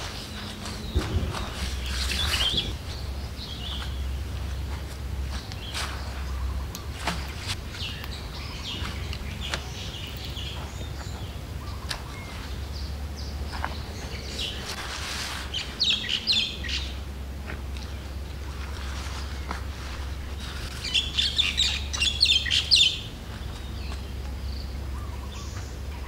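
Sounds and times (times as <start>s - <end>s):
tent fabric rustling: 0.0s - 8.0s, 14.1s - 16.4s, 17.5s - 21.5s
small birds chirping: 0.0s - 26.0s.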